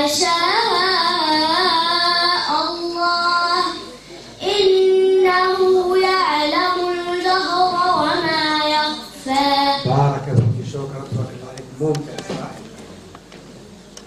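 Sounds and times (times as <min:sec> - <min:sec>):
girl chanting recitation: 0:00.0 - 0:10.4.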